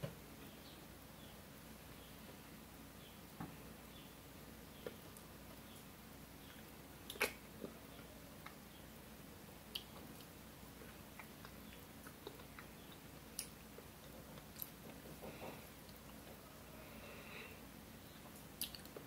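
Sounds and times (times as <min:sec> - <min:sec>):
child chewing fruit: 0:04.6 - 0:19.0.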